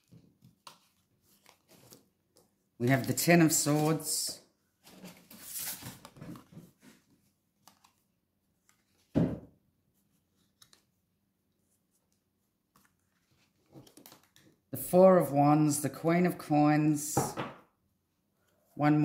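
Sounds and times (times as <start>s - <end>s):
cards rustling and sliding: 0.0s - 4.2s, 4.8s - 9.1s, 10.0s - 14.6s.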